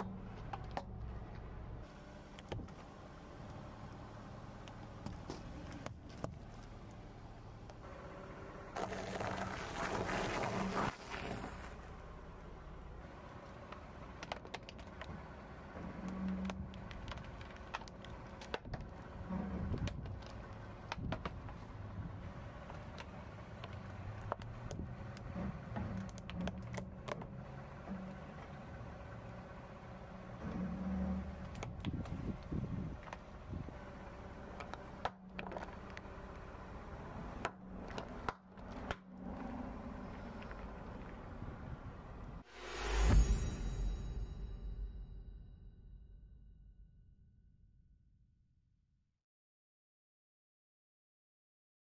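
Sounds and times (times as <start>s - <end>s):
car engine low rumble: 0.0s - 46.6s
plastic cracking under tyre: 13.7s - 15.2s, 16.1s - 21.6s, 34.6s - 36.4s, 37.4s - 39.2s.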